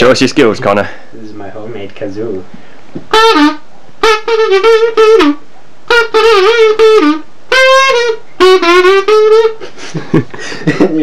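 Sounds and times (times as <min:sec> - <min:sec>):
kazoo buzzing: 0:03.1 - 0:10.0.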